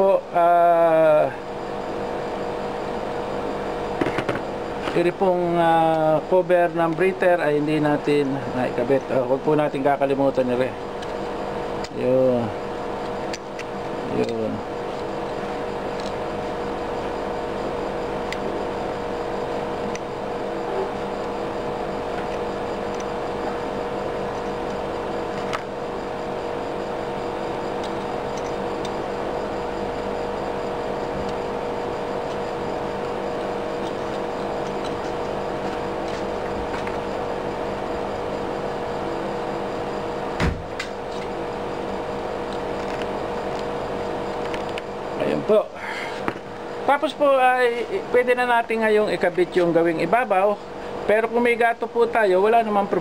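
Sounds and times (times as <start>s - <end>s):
mechanical hum: 0.0s - 53.0s
loud knock: 40.4s - 40.7s.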